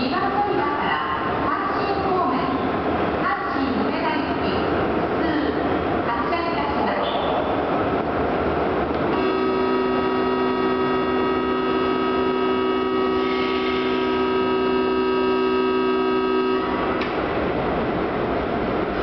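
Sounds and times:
electronic departure chord: 9.1 - 17.4.

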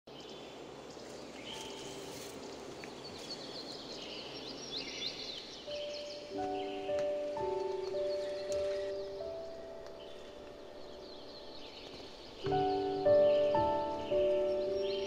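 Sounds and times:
small birds chirping: 0.1 - 15.0
soft music with held notes: 1.4 - 3.4, 5.5 - 15.0.

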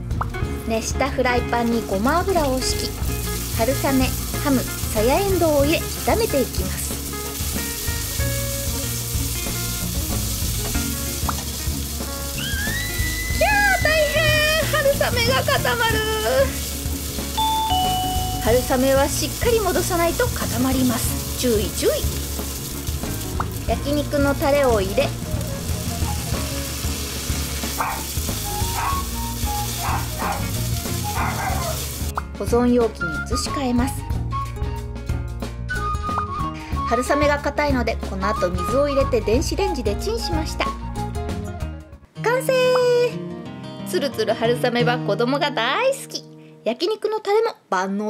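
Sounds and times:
food sizzling in a frying pan: 1.4 - 32.1
dog barking: 27.8 - 28.1, 28.7 - 29.1, 29.8 - 30.5, 31.1 - 31.8.

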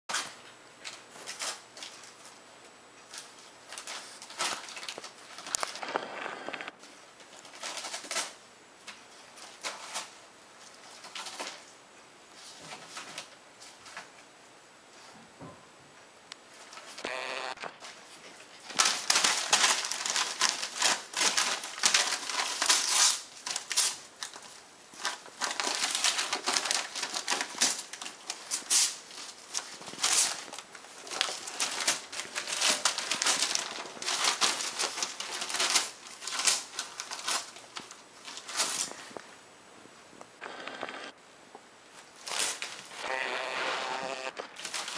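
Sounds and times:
newspaper crinkling and tearing: 3.1 - 8.4, 17.8 - 39.2, 42.1 - 44.9.

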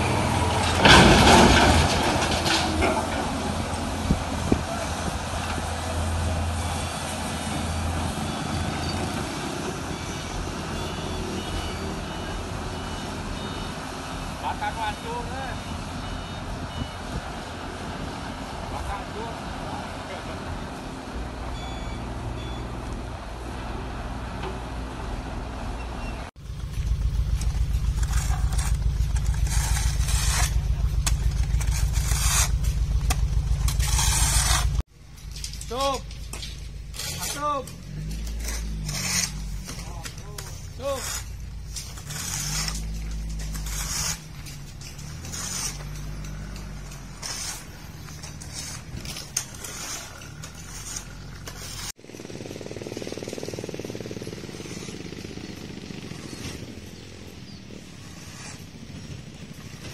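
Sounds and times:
heavy diesel engines droning: 0.0 - 59.9
faint reversing alarm beeping: 6.3 - 17.2, 21.5 - 22.9
shovels scraping mud on road: 26.0 - 59.9
diesel engine idling: 26.3 - 35.4, 37.7 - 49.6.

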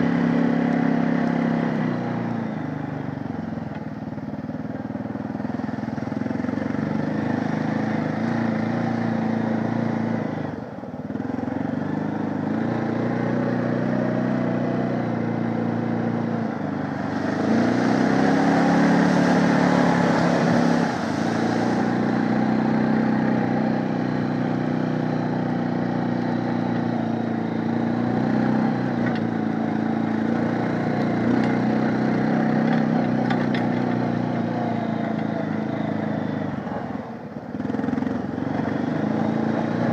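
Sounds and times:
atv engine revving: 0.0 - 39.9
splashing through muddy water: 16.8 - 22.7.

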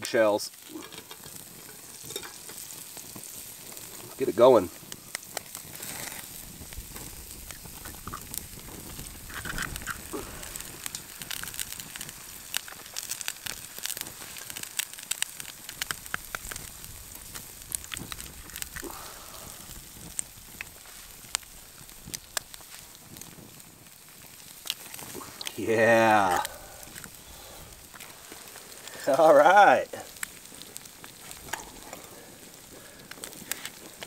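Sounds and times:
campfire crackling and popping: 0.0 - 34.0
eggs sizzling in a pan: 0.0 - 34.0
eggs cracked into a pan: 0.7 - 2.6.

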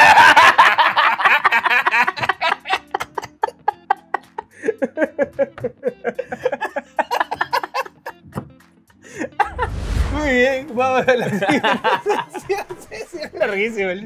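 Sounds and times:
men laughing hard: 0.0 - 8.2, 9.1 - 9.7, 11.1 - 13.4.

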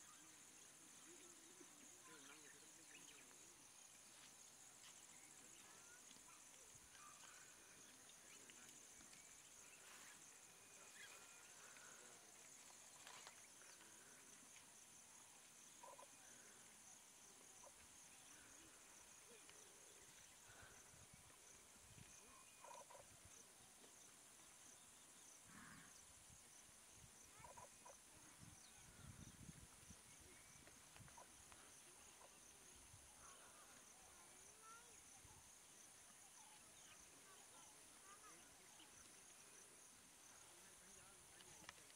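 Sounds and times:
insects trilling: 0.0 - 41.9
faint bird calls: 15.7 - 23.2, 24.8 - 26.1, 27.3 - 35.0.

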